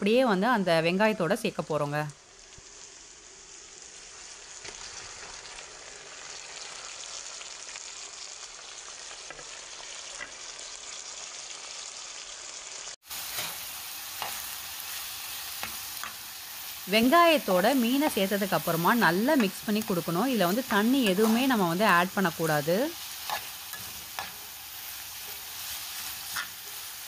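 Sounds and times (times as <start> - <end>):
onions sizzling in a pan: 0.1 - 27.0
spoon stirring and knocking pan: 19.2 - 22.0, 23.2 - 26.8.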